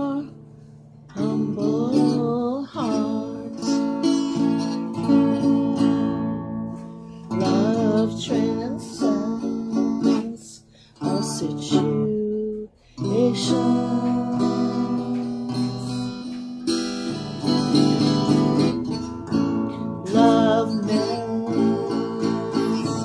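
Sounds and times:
acoustic guitar chords: 0.0s - 23.0s
woman singing: 1.1s - 3.9s, 7.4s - 16.2s, 20.0s - 23.0s.

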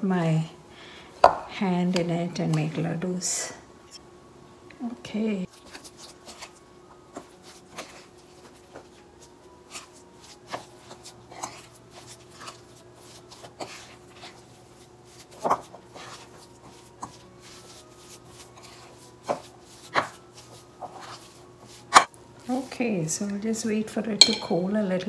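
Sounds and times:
faint steady hum: 0.0s - 25.0s
spoon scraping glass bowl: 9.7s - 22.0s.

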